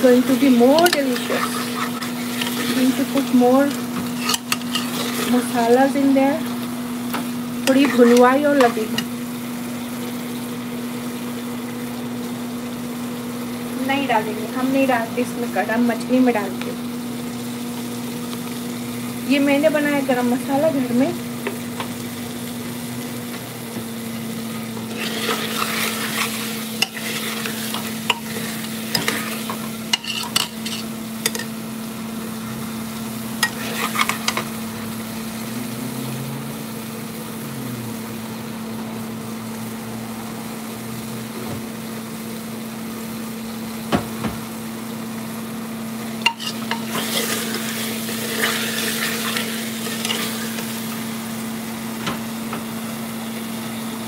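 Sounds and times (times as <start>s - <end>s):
food sizzling: 0.0s - 54.0s
steady hum: 0.0s - 54.0s
ladle stirring and scraping pot: 0.5s - 5.9s, 24.8s - 31.5s, 33.4s - 34.5s, 46.2s - 50.9s.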